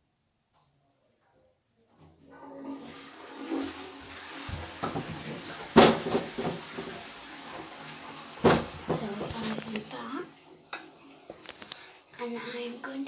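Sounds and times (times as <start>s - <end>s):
footsteps walking: 4.4s - 10.2s
knocks and handling noise: 8.4s - 9.9s.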